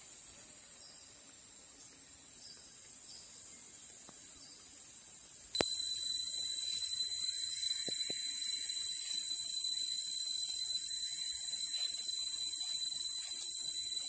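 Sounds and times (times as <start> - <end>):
insects droning: 0.0 - 14.0
shrill whistle-like tone: 5.6 - 14.0.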